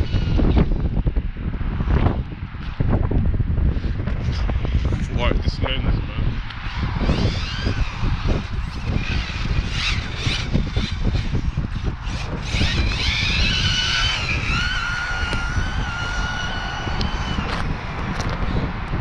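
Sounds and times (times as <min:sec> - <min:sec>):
wind rumble on microphone: 0:00.0 - 0:19.0
electric motor whine: 0:06.0 - 0:19.0.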